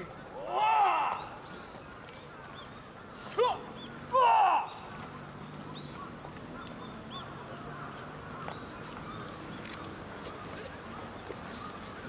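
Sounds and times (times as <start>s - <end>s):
martial arts shouts: 0.3s - 1.4s, 3.2s - 4.7s.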